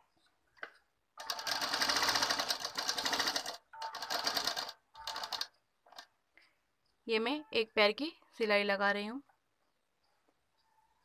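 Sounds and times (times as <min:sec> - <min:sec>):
sewing machine stitching: 0:01.2 - 0:06.1.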